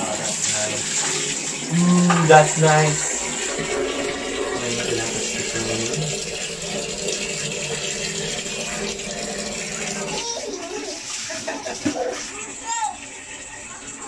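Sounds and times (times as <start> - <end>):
water running from a tap: 0.0 - 14.0.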